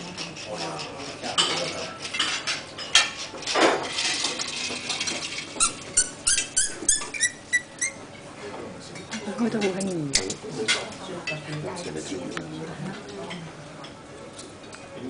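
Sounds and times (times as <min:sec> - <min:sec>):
cork squeaking: 0:05.6 - 0:08.0.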